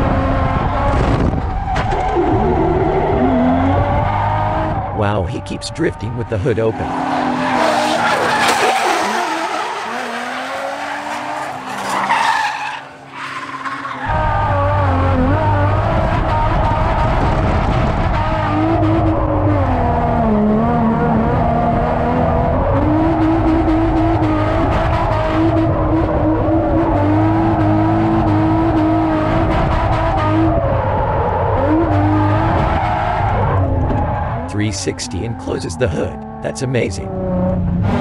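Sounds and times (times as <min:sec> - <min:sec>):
car engine at high revs: 0:00.0 - 0:38.0
tyres screeching: 0:06.3 - 0:14.3.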